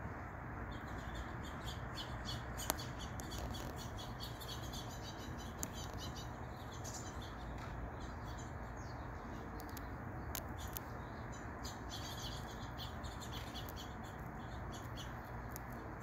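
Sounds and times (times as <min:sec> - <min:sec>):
small songbirds chirping: 0:00.0 - 0:16.0.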